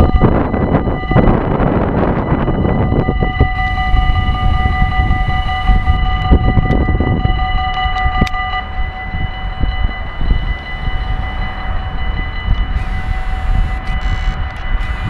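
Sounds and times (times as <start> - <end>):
electric train rumbling: 0.0 - 15.0
high-pitched tones: 0.0 - 15.0
wind buffeting microphone: 0.0 - 15.0.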